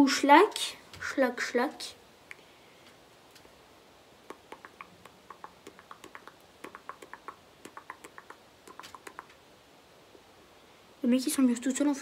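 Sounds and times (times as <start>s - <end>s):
soft irregular clicks: 4.3s - 9.4s.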